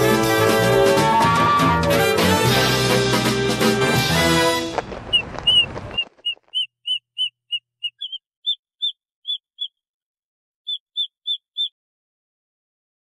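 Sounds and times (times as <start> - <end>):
brass-led theme music: 0.0 - 4.8
short high chirps: 6.6 - 9.8.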